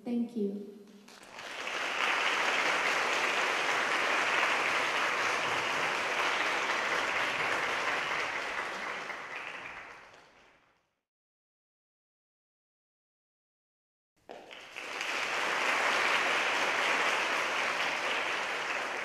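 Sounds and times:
audience applauding: 0:01.0 - 0:10.8, 0:14.3 - 0:19.0.

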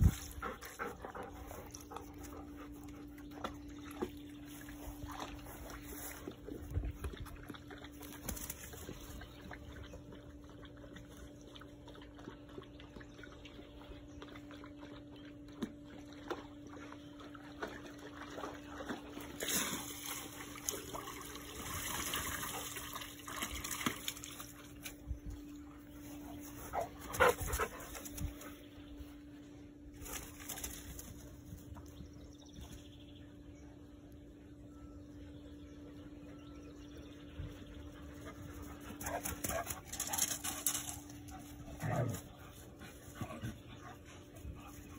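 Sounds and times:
dog panting: 0:00.0 - 0:03.4, 0:26.6 - 0:28.4
steady low hum: 0:00.0 - 0:44.9.

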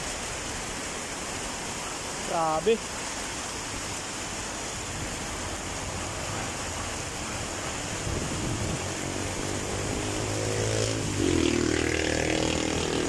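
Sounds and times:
heavy rain pouring: 0:00.0 - 0:13.0
vehicle engine: 0:06.1 - 0:13.0.

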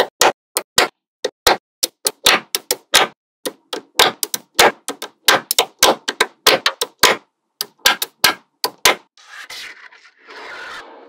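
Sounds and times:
magnetic balls clicking: 0:01.8 - 0:08.9
fingers rubbing and rattling balls: 0:01.8 - 0:09.1.

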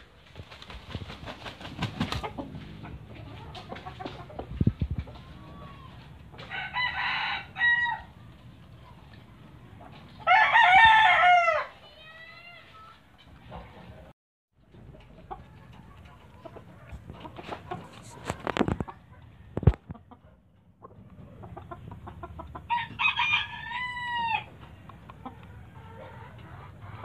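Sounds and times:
rooster crowing: 0:06.4 - 0:08.1, 0:10.3 - 0:11.8, 0:22.7 - 0:24.5.

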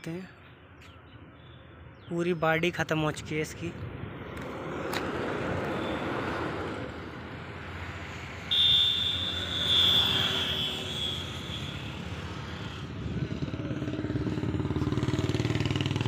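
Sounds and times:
vehicle engine rumble: 0:11.0 - 0:16.0.

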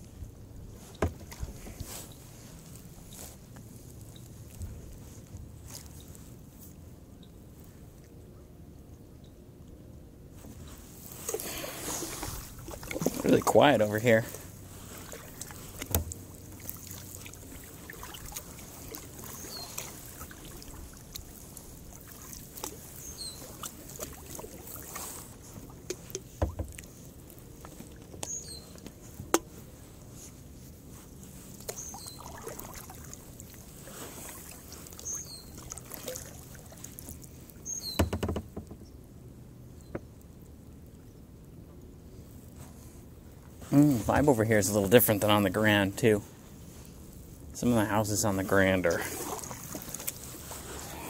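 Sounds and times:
paddle dipping into water: 0:00.6 - 0:06.3, 0:10.4 - 0:38.8, 0:48.2 - 0:51.0
light clicks and knocks: 0:38.0 - 0:38.9.

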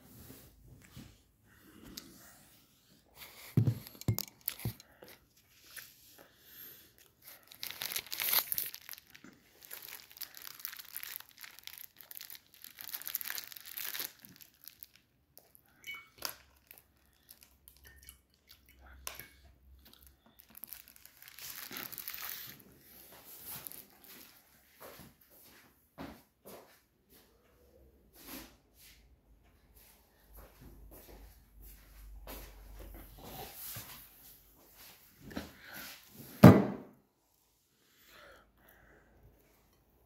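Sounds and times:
aluminium foil crinkling: 0:03.8 - 0:05.8, 0:07.0 - 0:18.0, 0:19.8 - 0:24.4.

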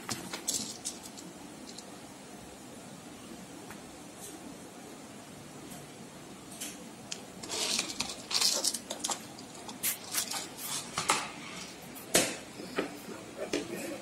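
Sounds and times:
beads scraping on wire: 0:00.1 - 0:01.8, 0:07.4 - 0:11.7.

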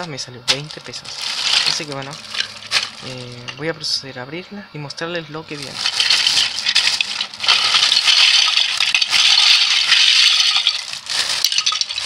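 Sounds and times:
plastic bricks clattering: 0:00.5 - 0:03.4, 0:05.6 - 0:12.0
plastic bag crinkling: 0:00.5 - 0:03.6, 0:05.6 - 0:12.0.

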